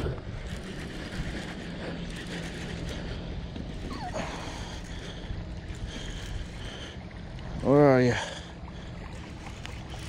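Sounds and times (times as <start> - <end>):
wind rumbling on microphone: 0.0 - 8.0.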